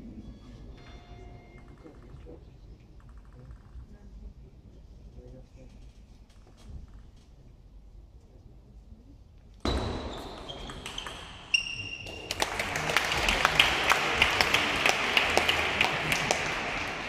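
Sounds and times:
table tennis ball hits: 0:09.7 - 0:12.6
audience applause: 0:12.1 - 0:17.0.

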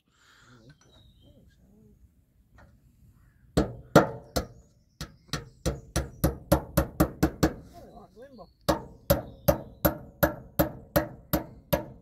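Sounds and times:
hammer striking nails: 0:03.6 - 0:07.6, 0:08.7 - 0:12.0.

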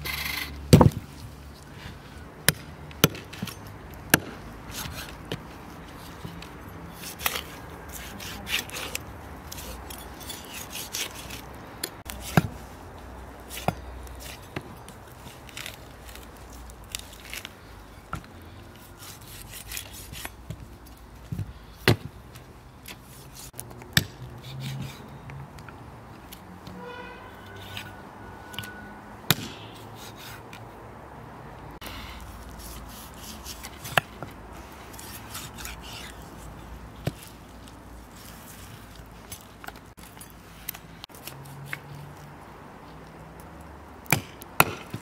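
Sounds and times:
knife cutting and scraping: 0:00.0 - 0:12.7, 0:13.4 - 0:17.6, 0:18.7 - 0:20.6, 0:22.8 - 0:25.2, 0:27.4 - 0:30.6, 0:31.9 - 0:42.3.

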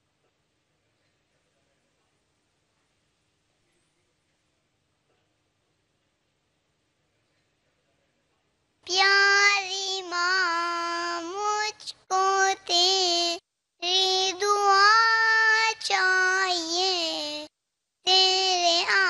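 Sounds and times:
boy singing: 0:08.9 - 0:17.5, 0:18.1 - 0:19.0.

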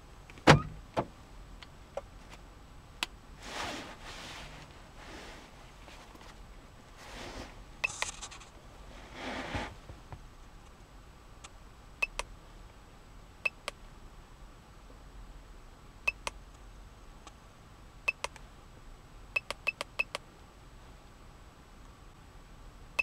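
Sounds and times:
keypad beeps with clicks: 0:16.1 - 0:16.3, 0:19.4 - 0:20.2.

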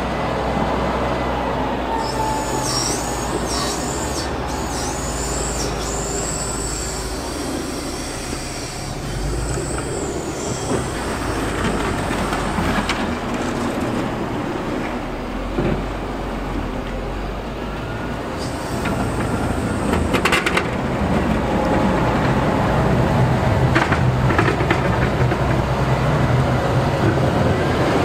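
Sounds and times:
diesel engine running: 0:00.0 - 0:28.0
high-pitched squeals: 0:01.5 - 0:13.8.

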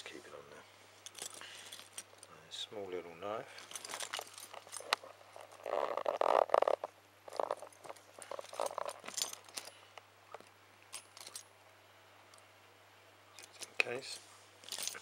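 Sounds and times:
keys clinking: 0:01.1 - 0:02.3, 0:03.6 - 0:05.9, 0:07.4 - 0:09.8, 0:11.0 - 0:11.5, 0:14.6 - 0:15.0.

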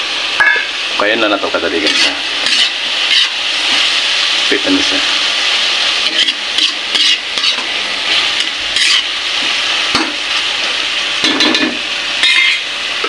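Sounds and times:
eggplant sizzling in a wok: 0:00.0 - 0:13.0
spatula scraping pan: 0:01.7 - 0:03.9, 0:06.0 - 0:10.1, 0:11.2 - 0:12.7.

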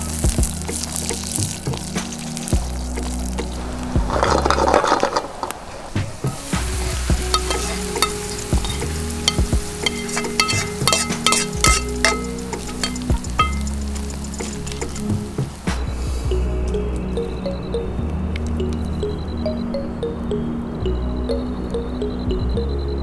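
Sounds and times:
shallots sizzling in oil: 0:00.0 - 0:15.8
metal spoon scraping pan: 0:07.3 - 0:13.7
spoon tapping against pan: 0:07.4 - 0:13.7.

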